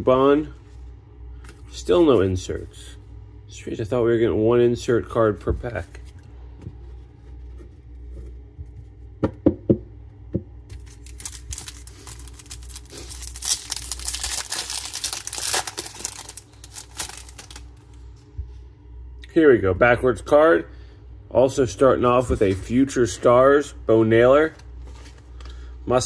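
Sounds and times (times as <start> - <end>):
foil wrapper crinkling and tearing: 10.7 - 17.8.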